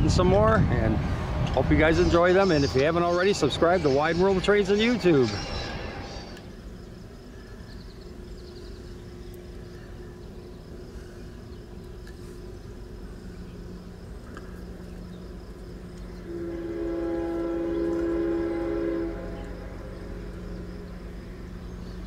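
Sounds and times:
train rumble: 0.0 - 22.0
train air horn chord: 16.2 - 20.5.

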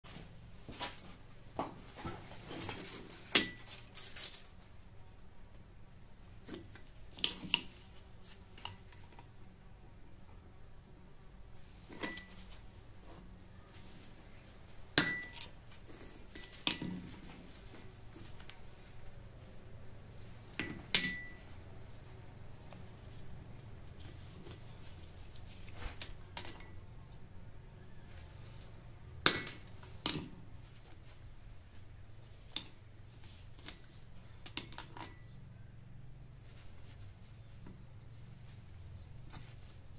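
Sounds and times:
low steady hum: 0.0 - 39.9
metal tools clinking on anvil: 2.5 - 4.4, 6.4 - 7.9, 11.9 - 13.6, 15.0 - 18.0, 20.5 - 21.7, 29.3 - 31.1, 33.6 - 35.5
metal tools knocking on anvil: 15.0 - 17.2, 20.6 - 21.5, 29.3 - 30.6.

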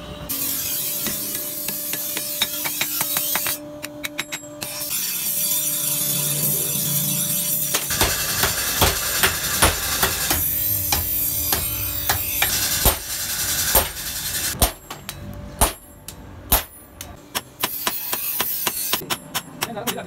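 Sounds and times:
hammer striking steel on anvil: 7.6 - 20.0.

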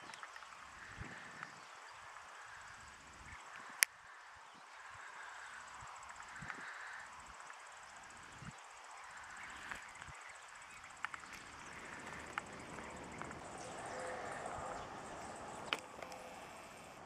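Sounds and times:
steady hiss: 0.0 - 17.0
wind buffeting microphone: 0.7 - 1.7, 9.4 - 15.9
sharp clicks: 15.7 - 16.2.

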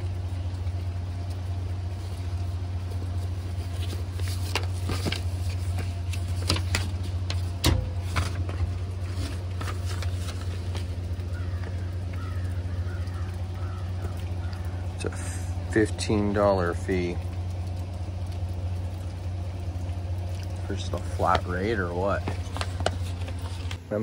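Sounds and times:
vehicle engine idling: 0.0 - 24.0
paper rustling: 2.9 - 14.1, 20.4 - 24.0.

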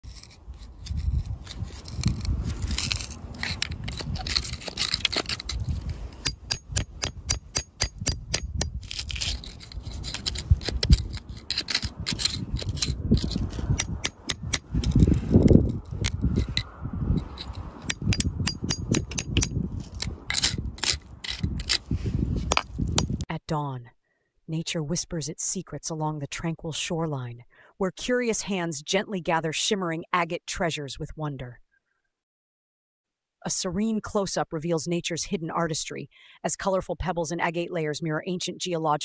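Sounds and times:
clicks of grit and pebbles: 0.0 - 7.4, 8.0 - 23.2
dull rub of tool on dirt: 0.0 - 23.2
metal pick scraping gritty soil: 0.0 - 23.2.

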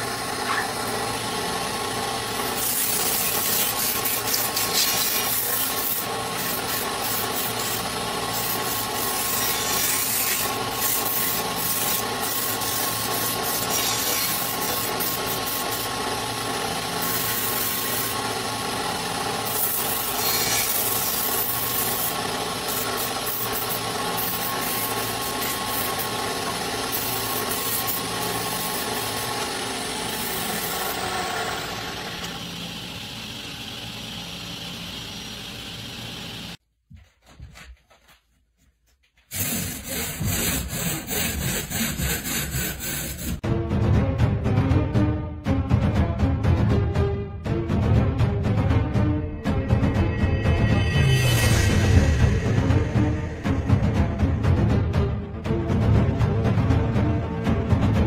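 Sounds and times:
sandpaper rubbing spinning wood: 0.0 - 36.6, 39.3 - 43.4
wood lathe motor hum: 0.0 - 36.6.

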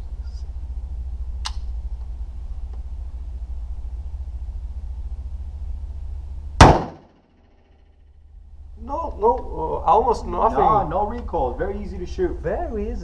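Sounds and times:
low rumble: 0.0 - 7.0, 8.0 - 13.0
faint sharp click: 1.4 - 1.7
loud rifle shot: 6.6 - 7.2.

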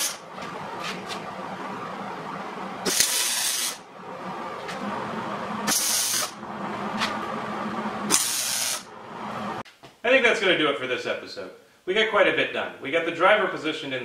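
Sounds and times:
arc welder hissing: 0.0 - 0.4, 2.8 - 3.9, 4.5 - 9.6.

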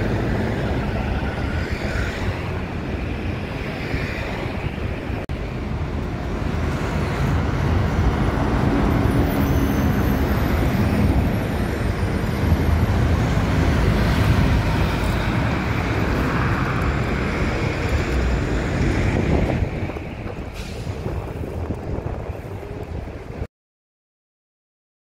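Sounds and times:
road traffic passing: 0.0 - 23.5
wind rumbling on microphone: 0.0 - 23.5.

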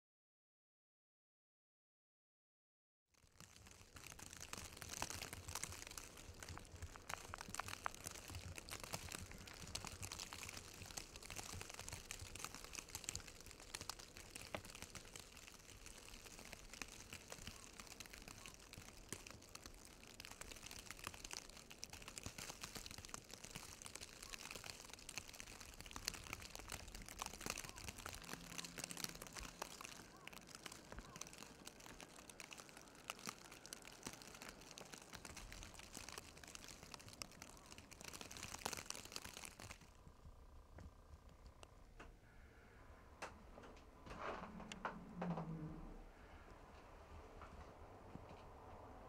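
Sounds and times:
light crackles: 3.2 - 49.0
faint low hum: 39.9 - 49.0
low wind rumble: 40.0 - 49.0.

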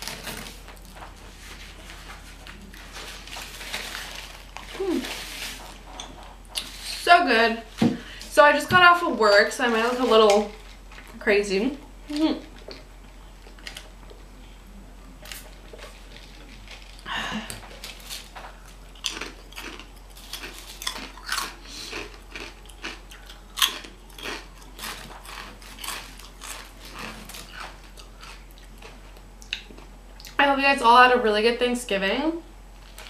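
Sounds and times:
chewing crunchy chips: 15.2 - 30.4.

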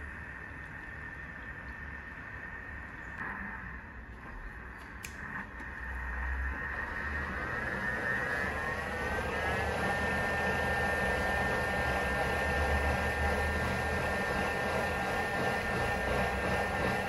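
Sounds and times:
kitchen appliance motor whirring: 5.7 - 17.0.

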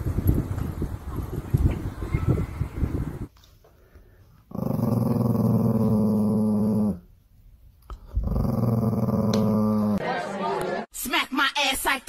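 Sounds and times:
small dog growling: 4.5 - 7.1, 8.0 - 10.0.

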